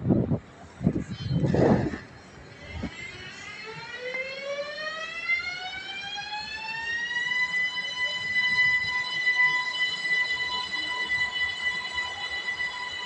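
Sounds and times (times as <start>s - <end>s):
train traction motors whining: 0.2s - 13.0s.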